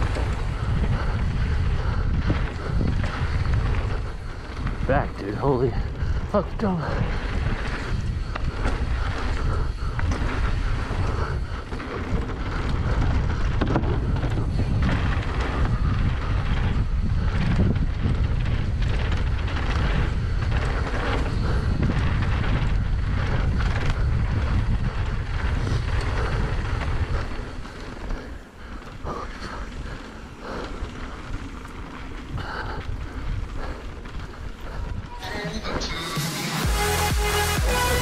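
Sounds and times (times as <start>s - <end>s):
wind buffeting microphone: 0.0s - 35.8s
bike tyre noise: 0.0s - 38.0s
bike knocks and rattles: 7.0s - 35.1s.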